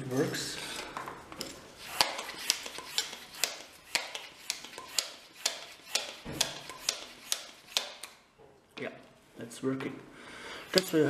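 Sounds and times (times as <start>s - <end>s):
bicycle pump clicking: 1.8s - 8.2s.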